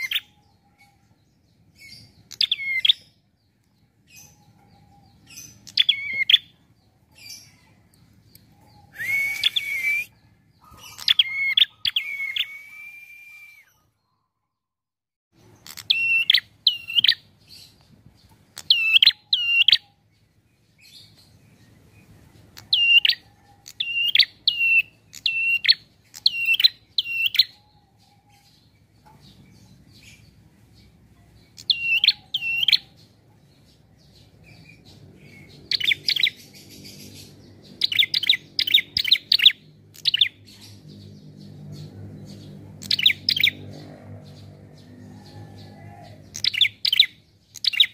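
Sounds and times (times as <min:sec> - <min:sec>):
bird chirping: 0:00.0 - 0:14.7, 0:15.4 - 0:47.9.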